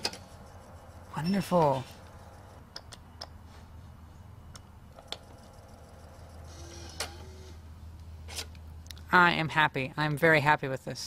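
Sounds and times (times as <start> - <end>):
floppy drive whirring: 4.6 - 7.7.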